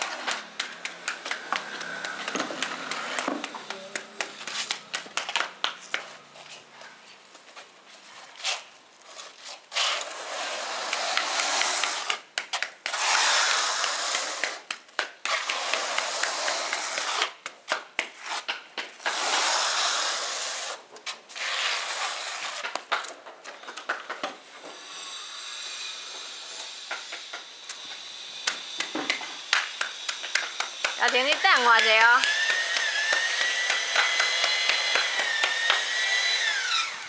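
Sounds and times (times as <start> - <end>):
trowel scraping adhesive on concrete: 0.0 - 4.9, 8.2 - 23.1, 24.6 - 36.6
scattered clicks and taps: 0.3 - 6.1, 28.4 - 35.9.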